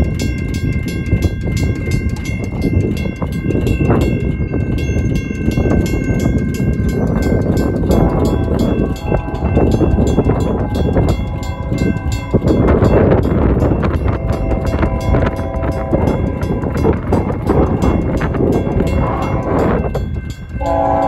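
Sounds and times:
mechanical bell striking rapidly: 0:00.0 - 0:20.9
electronic crossing bell: 0:00.0 - 0:21.0
low rumble: 0:05.8 - 0:21.0.

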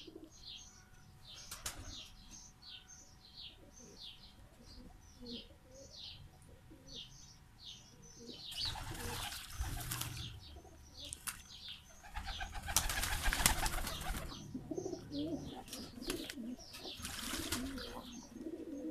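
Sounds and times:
pigeons cooing: 0:00.0 - 0:00.5, 0:03.5 - 0:07.1, 0:08.0 - 0:11.1, 0:11.9 - 0:18.9
pigeons splashing and wing beating: 0:08.6 - 0:10.4, 0:11.1 - 0:11.5, 0:12.1 - 0:14.4, 0:15.6 - 0:18.2.

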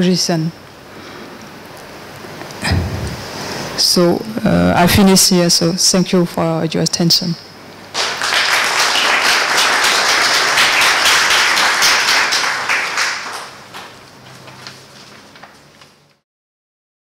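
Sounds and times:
audience applauding: 0:07.9 - 0:14.6.

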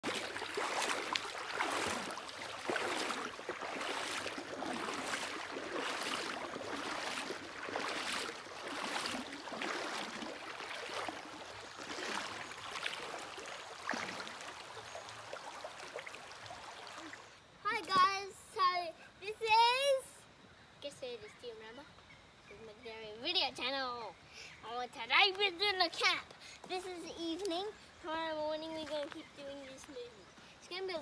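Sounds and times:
splashing swish: 0:00.0 - 0:14.8
creek water running over stones: 0:00.0 - 0:17.8, 0:25.2 - 0:30.1.

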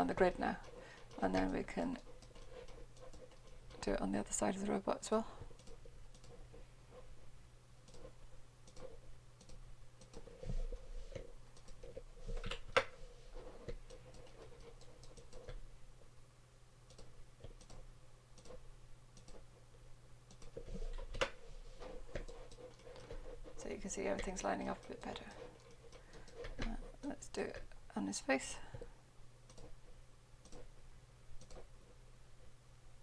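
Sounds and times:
faint steady hum: 0:00.0 - 0:33.0
mouse and keyboard clicks: 0:05.6 - 0:06.4, 0:07.8 - 0:10.3, 0:20.3 - 0:21.4, 0:31.4 - 0:31.7.

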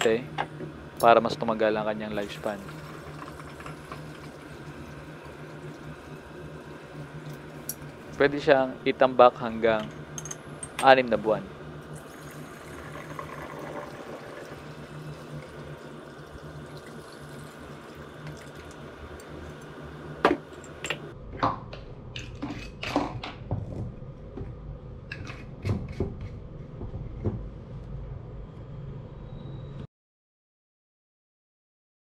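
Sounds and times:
liquid trickling through a funnel: 0:02.2 - 0:08.2, 0:11.9 - 0:20.8.

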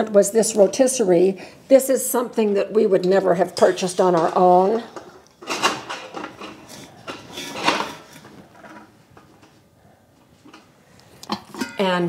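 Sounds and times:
metal grill parts clinking: 0:05.4 - 0:08.1, 0:11.5 - 0:12.0.

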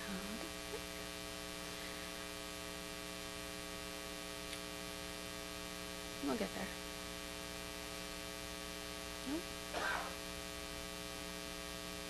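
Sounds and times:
electrical mains hum with hiss: 0:00.0 - 0:12.0
faint click: 0:04.5 - 0:04.7.

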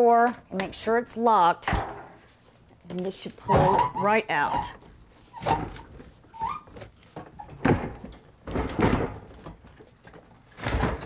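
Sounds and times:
metal dishwasher scraping and knocking: 0:03.4 - 0:04.7.

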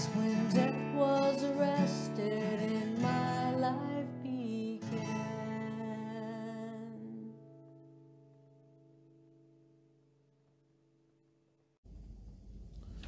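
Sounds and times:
woman singing: 0:00.0 - 0:07.6
acoustic guitar strumming: 0:00.0 - 0:10.5.

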